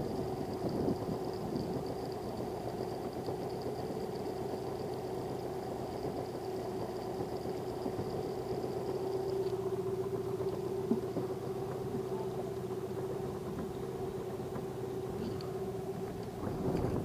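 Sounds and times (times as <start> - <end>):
outboard motor humming: 0.0 - 17.0.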